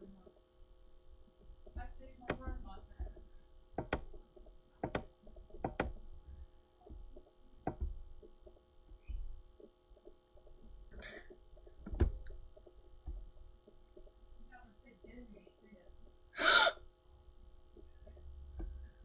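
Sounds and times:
faint steady hum: 0.0s - 19.0s
computer mouse clicks: 3.8s - 6.1s.

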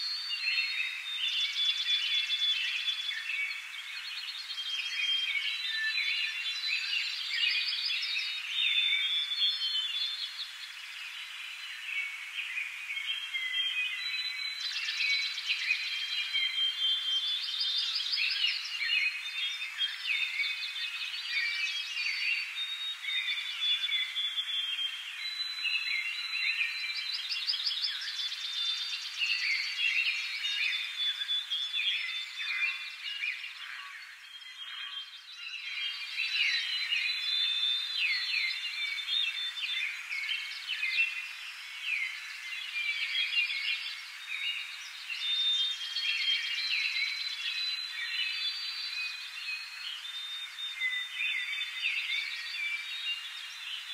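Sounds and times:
birds chirping and trilling: 0.0s - 53.9s.

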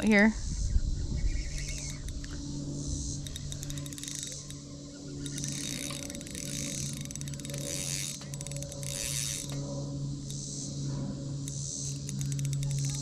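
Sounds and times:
fishing reel clicking: 1.5s - 2.4s, 3.0s - 10.5s, 11.4s - 13.0s.

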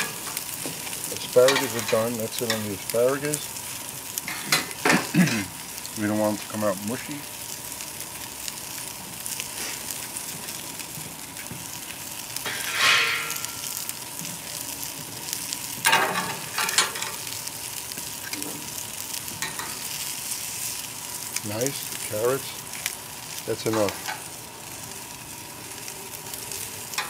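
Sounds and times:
vegetables sizzling on a grill: 0.0s - 27.0s.

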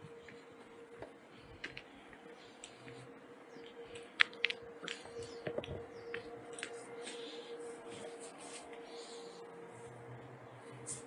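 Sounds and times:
faint steady tone: 0.0s - 11.0s
footsteps crunching through dry grass: 4.9s - 9.3s.

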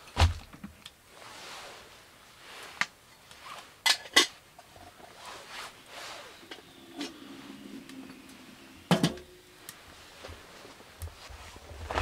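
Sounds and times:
soft rustling: 1.1s - 3.8s, 4.6s - 8.7s, 9.6s - 12.0s
pots and utensils knocking: 8.9s - 9.4s.

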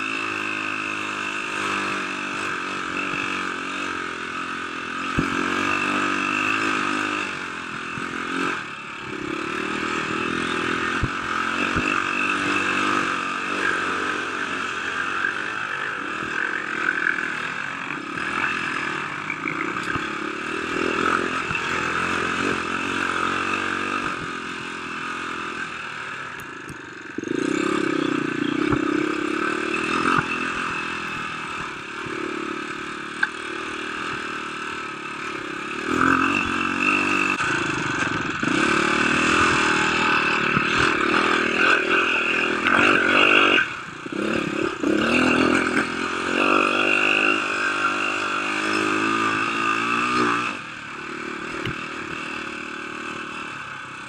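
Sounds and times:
off-road motorcycle engine revving: 0.0s - 54.0s.

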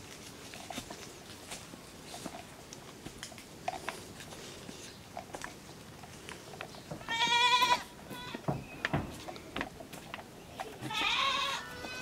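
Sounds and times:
footsteps on dry leaves: 0.0s - 6.5s
goat bleating: 7.0s - 8.5s, 10.6s - 12.0s.

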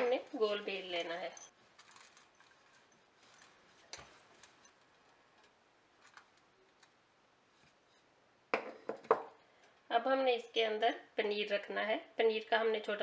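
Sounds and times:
knock: 8.6s - 9.3s.

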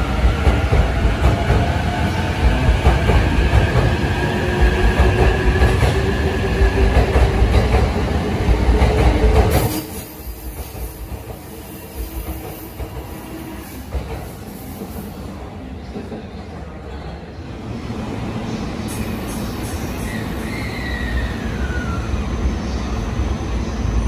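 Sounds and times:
train wheels rumbling on rails: 0.0s - 17.1s.

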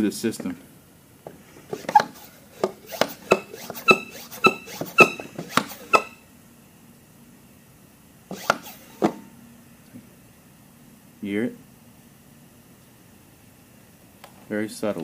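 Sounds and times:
hand pump clicks and squeaky pops: 1.8s - 6.2s.

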